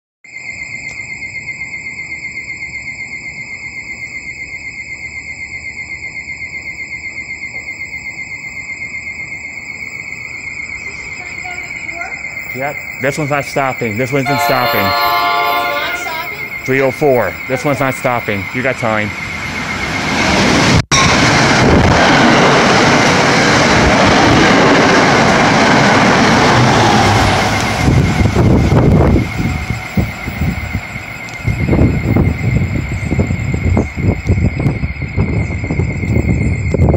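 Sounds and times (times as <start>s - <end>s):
warbling electronic warning alarm: 0.3s - 36.9s
train rushing past: 11.7s - 36.9s.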